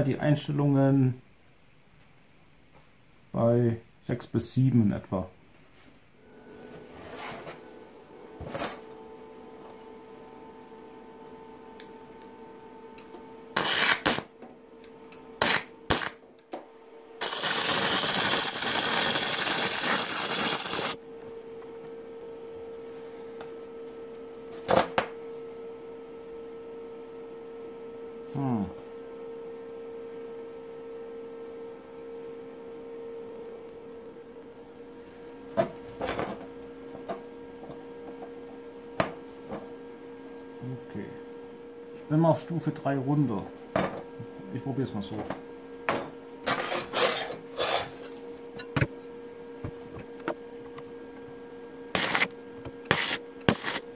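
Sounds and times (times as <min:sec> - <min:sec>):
welding machine hum: 0:13.0 - 0:16.5, 0:17.2 - 0:21.0, 0:46.4 - 0:53.9
welding arc crackle: 0:13.6 - 0:14.3, 0:15.4 - 0:16.2, 0:17.2 - 0:21.0
welder sputtering starts: 0:17.2 - 0:21.0.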